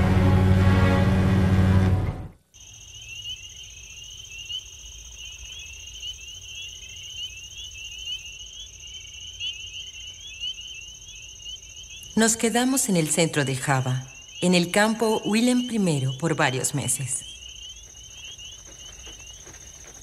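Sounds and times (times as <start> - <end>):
music: 0.0 - 2.4
insects chirping rapidly: 2.4 - 20.0
insect high-pitched trill: 2.5 - 20.0.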